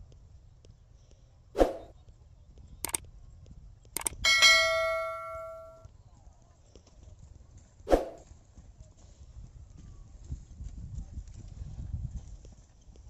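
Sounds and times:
faint hoofsteps: 0:02.0 - 0:13.0
mouse clicks: 0:02.8 - 0:03.0, 0:04.0 - 0:04.2
bell notification chime: 0:04.3 - 0:05.8.

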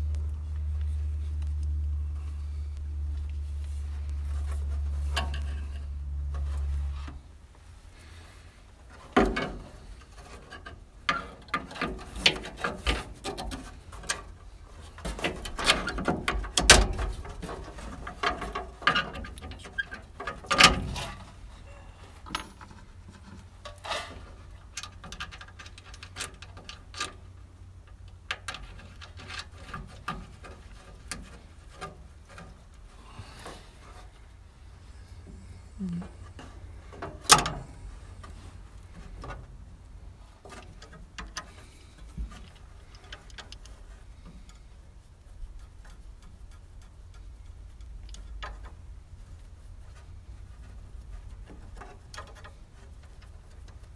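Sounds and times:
low hum: 0:00.0 - 0:12.1, 0:13.6 - 0:53.9
clicks and taps of metal fittings: 0:45.6 - 0:48.9.

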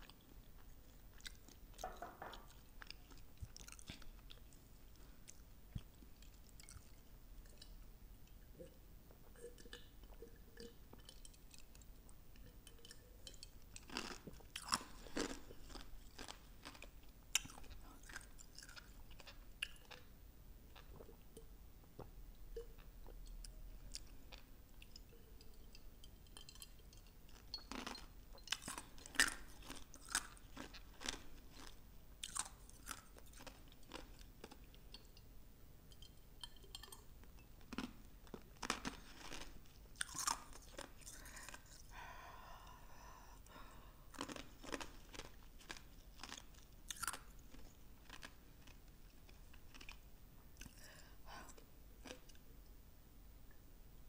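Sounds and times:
chewing and crunching: 0:00.0 - 0:20.1, 0:26.3 - 0:35.1, 0:36.0 - 0:41.9, 0:44.1 - 0:50.0.

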